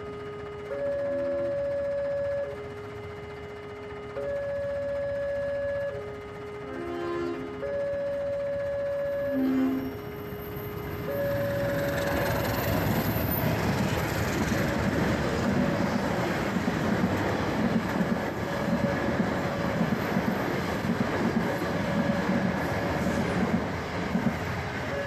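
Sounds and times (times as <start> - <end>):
train carriages rumbling: 9.4 - 25.0.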